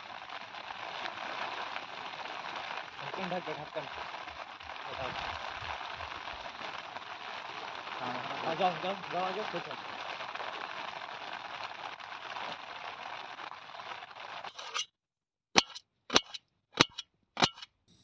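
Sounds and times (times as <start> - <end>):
steady rain hiss: 0.0 - 14.6
knife slicing onion on plate: 15.6 - 17.6.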